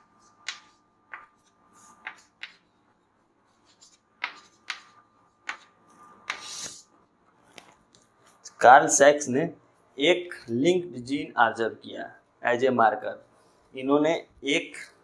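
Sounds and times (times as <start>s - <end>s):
chalk tapping on chalkboard: 0.4s - 2.7s, 3.6s - 6.8s
chalk scraping a line: 5.9s - 6.9s.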